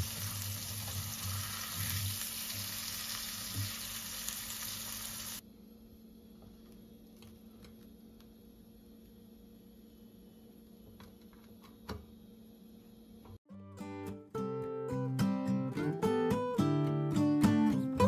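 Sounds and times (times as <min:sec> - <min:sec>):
fish frying in hot oil: 0:00.0 - 0:05.4.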